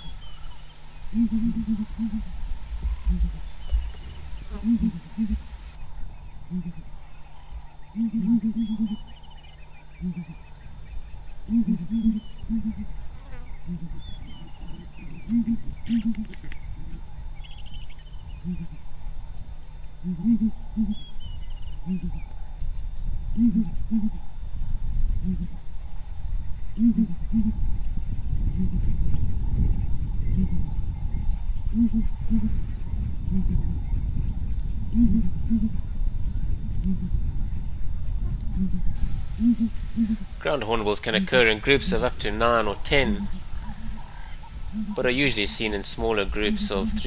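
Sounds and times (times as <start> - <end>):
small birds chirping: 0.0 - 18.9
hornbills booming: 0.0 - 19.1, 28.3 - 47.0
insects buzzing: 0.0 - 47.0.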